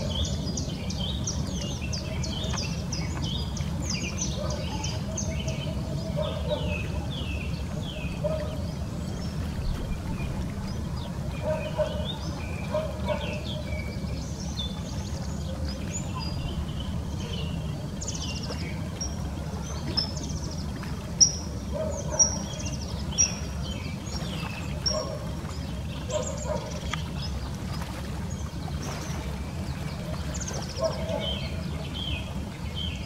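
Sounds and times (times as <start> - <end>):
ducks chirping: 4.3 - 14.1
low rumble: 7.5 - 12.5, 13.8 - 20.7.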